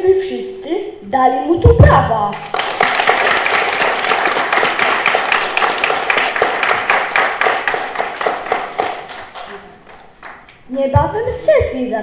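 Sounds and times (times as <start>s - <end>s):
applause: 2.3s - 10.6s.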